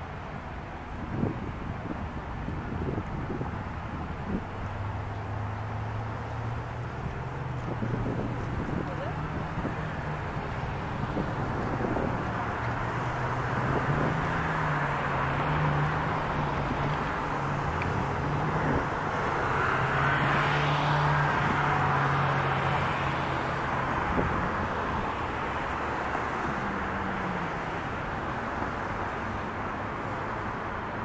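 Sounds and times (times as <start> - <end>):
urban traffic hum: 0.0 - 31.0
vehicle passing: 4.3 - 29.5.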